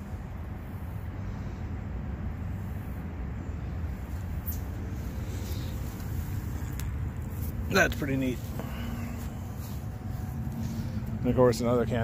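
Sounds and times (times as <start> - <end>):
road traffic rumbling: 0.0 - 12.0.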